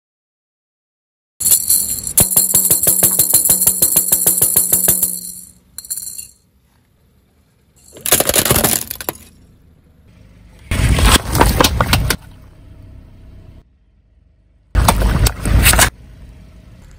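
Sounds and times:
toy maraca rattling: 0:01.4 - 0:06.4.

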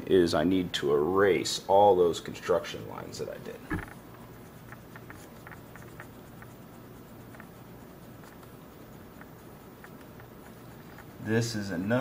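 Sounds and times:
eraser rubbing on paper: 0:02.6 - 0:12.0.

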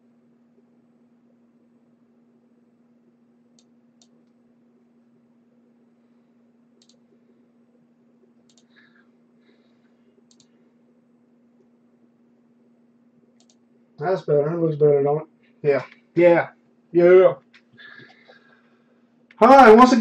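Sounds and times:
low hum: 0:00.0 - 0:20.0
computer mouse clicks: 0:06.8 - 0:07.1, 0:08.4 - 0:08.9, 0:10.2 - 0:10.6, 0:13.4 - 0:13.6.

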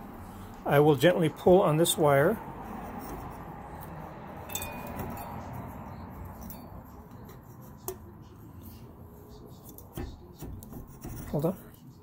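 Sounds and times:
wire scraping through tube: 0:09.6 - 0:11.8.

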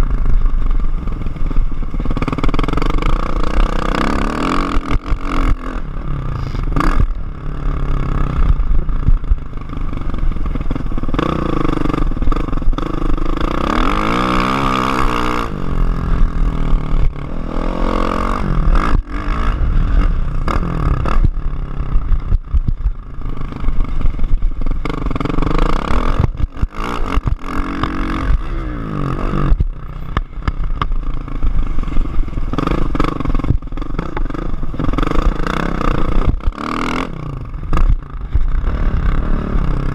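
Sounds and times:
motocross engine revving: 0:02.0 - 0:39.9
clatter of bumps: 0:29.4 - 0:37.1, 0:37.7 - 0:39.1.

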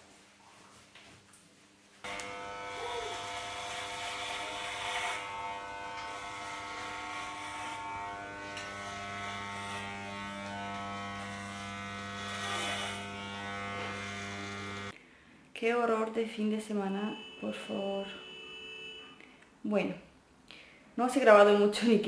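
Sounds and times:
electric hair clippers buzzing: 0:02.0 - 0:14.9.

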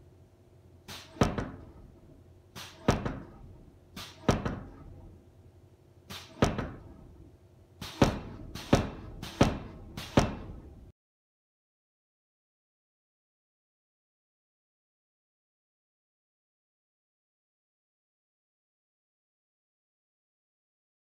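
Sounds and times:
pneumatic hiss: 0:00.8 - 0:01.8, 0:02.5 - 0:05.0, 0:06.0 - 0:07.1, 0:07.8 - 0:10.8.

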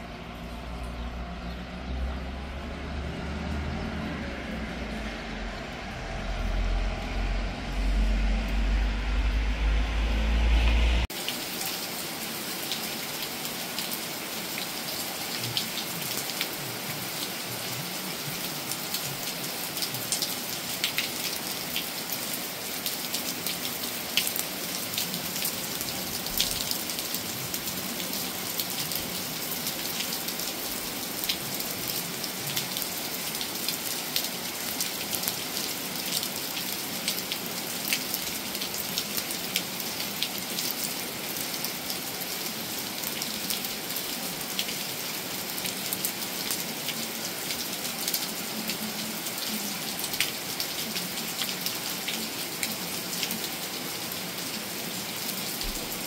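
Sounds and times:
steady rain hiss: 0:04.2 - 0:56.0
raindrops ticking close by: 0:11.1 - 0:54.3.

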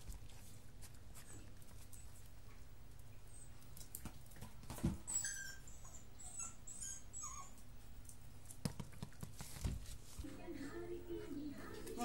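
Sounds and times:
dog whining: 0:05.0 - 0:07.7.

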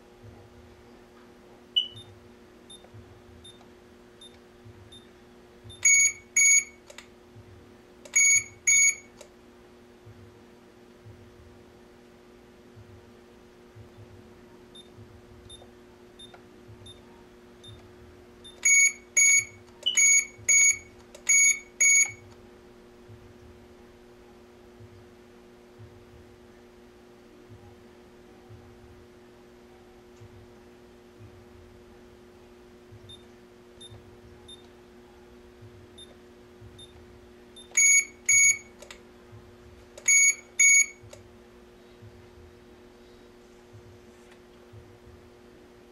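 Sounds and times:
faint steady hum: 0:00.0 - 0:45.9
soft keypad beeps: 0:01.8 - 0:02.1, 0:05.7 - 0:06.8, 0:08.1 - 0:09.1, 0:18.4 - 0:22.2, 0:37.6 - 0:38.7, 0:40.0 - 0:41.0.

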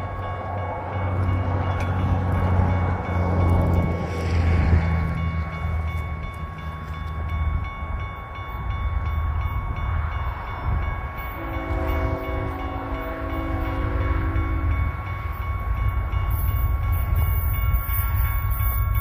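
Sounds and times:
distant locomotives rumbling: 0:00.0 - 0:19.0
train air horn chord: 0:11.3 - 0:14.9.

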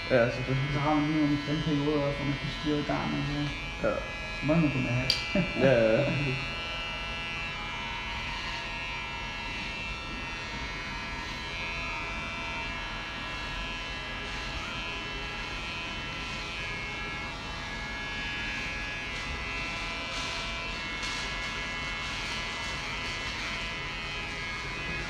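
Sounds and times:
electric hair clippers buzzing: 0:00.0 - 0:25.0.

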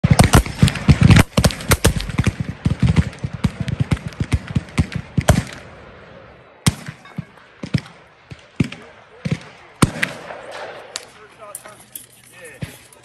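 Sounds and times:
musket shots: 0:00.0 - 0:05.8, 0:06.6 - 0:11.3.

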